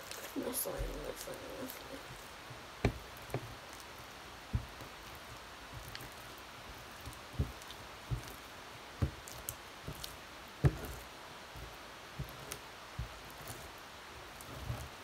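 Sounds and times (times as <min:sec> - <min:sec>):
hands squishing slime: 0:00.0 - 0:15.0
soft sticky clicks: 0:00.0 - 0:15.0
dull thumps: 0:02.0 - 0:15.0.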